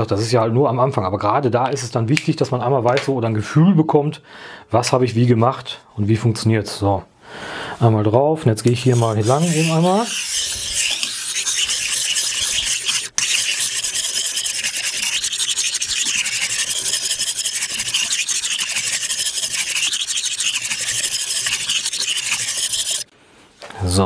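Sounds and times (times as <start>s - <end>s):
knife scraping on whetstone: 8.8s - 23.1s.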